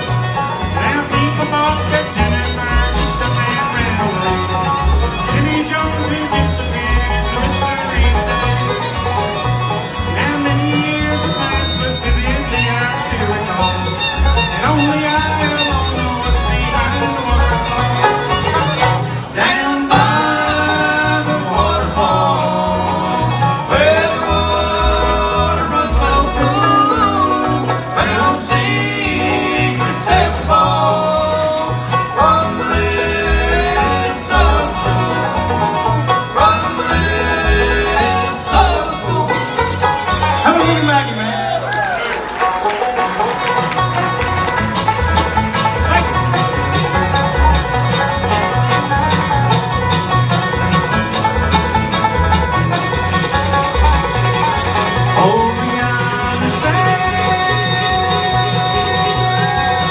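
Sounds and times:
acoustic guitar: 0.0 - 59.9
banjo: 0.0 - 59.9
fiddle: 0.0 - 59.9
plucked upright bass: 0.0 - 59.9
voices singing in harmony: 19.2 - 39.8.

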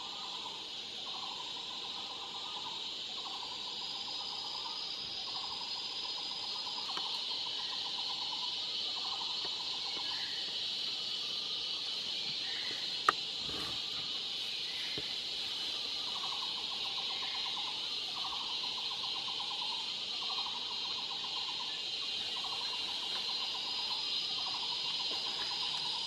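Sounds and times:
insects high-pitched drone: 0.0 - 26.0
lower pulsed insect trill: 0.0 - 26.0.

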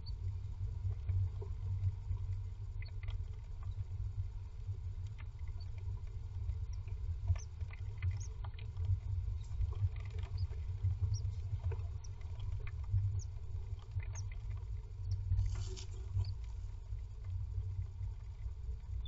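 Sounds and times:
steady low hum: 0.0 - 19.0
rustling of nest material: 15.4 - 16.8.

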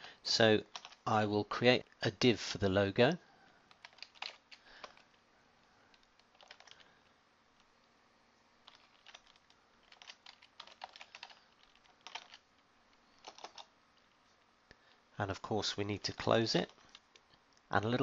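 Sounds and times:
keyboard typing: 0.7 - 1.0, 3.7 - 5.2, 5.9 - 6.9, 8.6 - 12.5, 13.2 - 14.2, 16.6 - 17.3.

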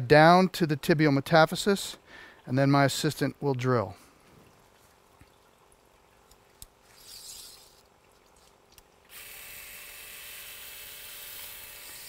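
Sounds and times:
power drill drilling: 9.1 - 12.0.

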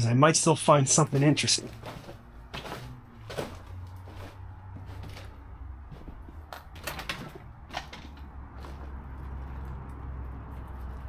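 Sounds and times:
footsteps: 0.9 - 10.0
small knocks and clicks: 4.8 - 8.8.

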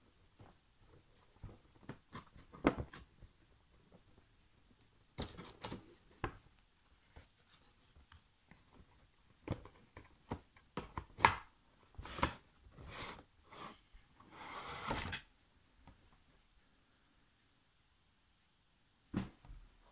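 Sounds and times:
box rustling scrape: 14.3 - 15.2.

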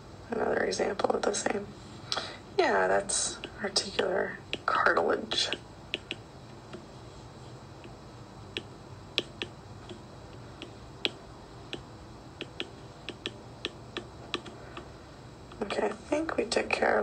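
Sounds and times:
faint steady hum: 0.0 - 17.0
stylus tapping on glass screen: 5.4 - 6.9, 7.8 - 10.0, 10.6 - 14.9.

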